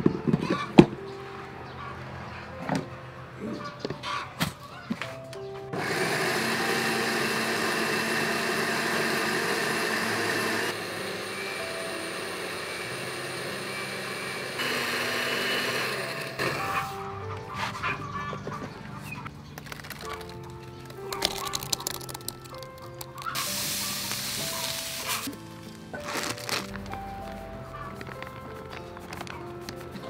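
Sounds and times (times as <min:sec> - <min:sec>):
electric blender grinding: 0:05.8 - 0:16.9, 0:21.3 - 0:25.3.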